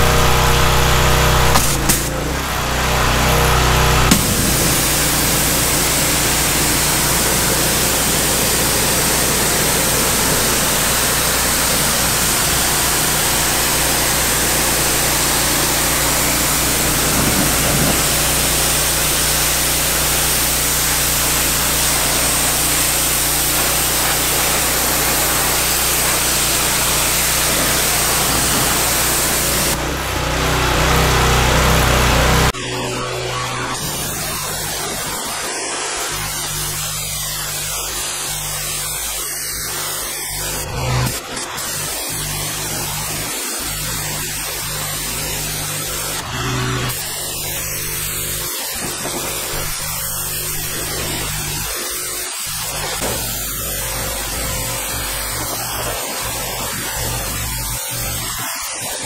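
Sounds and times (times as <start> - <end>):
pressure washer jet hissing: 0.0 - 58.9.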